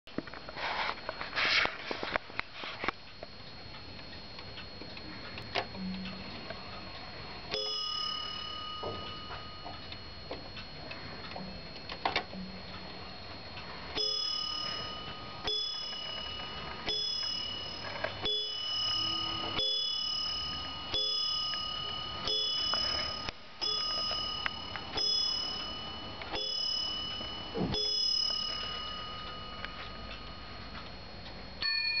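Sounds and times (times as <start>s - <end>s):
wall clock ticking: 2.9s - 32.0s
clock striking: 3.2s - 32.0s.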